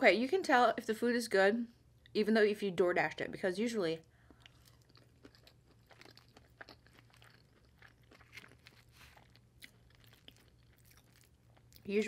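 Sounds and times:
close-up chewing: 0:04.1 - 0:12.0.

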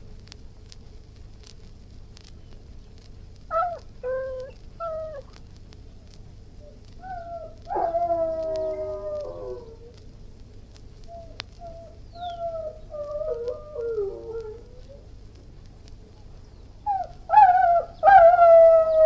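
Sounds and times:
dog whining: 0:03.5 - 0:05.2, 0:06.6 - 0:10.0, 0:11.1 - 0:15.0
dog howling: 0:03.5 - 0:05.3, 0:06.6 - 0:10.0, 0:11.1 - 0:15.0, 0:16.9 - 0:19.0.

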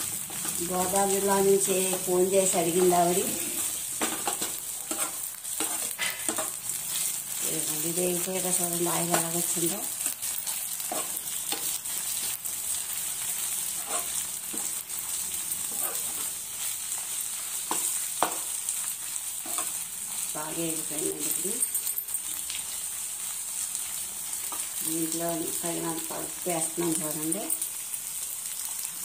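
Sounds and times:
spatula scraping wok: 0:00.0 - 0:21.8
leaves sizzling in a wok: 0:00.0 - 0:29.0.

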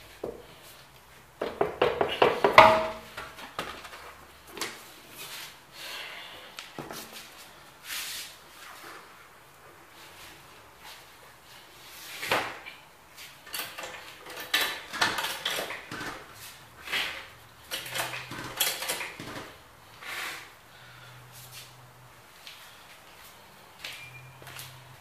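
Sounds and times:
wheel and tools clunking on concrete: 0:01.4 - 0:04.8, 0:13.2 - 0:19.6.

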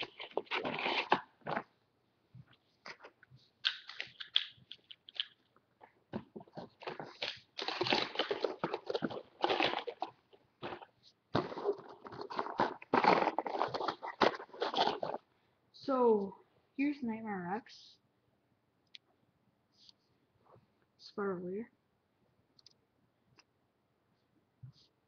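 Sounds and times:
plastic packaging crinkling: 0:00.0 - 0:01.7, 0:02.8 - 0:05.5, 0:06.2 - 0:15.2.

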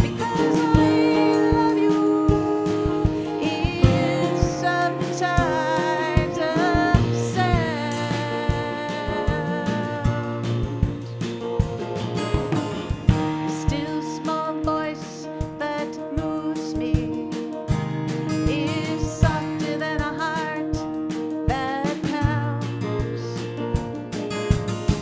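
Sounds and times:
woman singing slow song: 0:00.0 - 0:11.4, 0:13.3 - 0:17.6, 0:18.3 - 0:23.4
acoustic guitars playing: 0:00.0 - 0:25.0.

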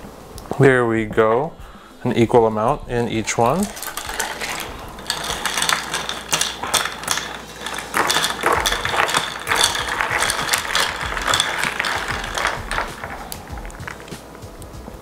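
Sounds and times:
ice clinking in glasses: 0:03.3 - 0:14.2.

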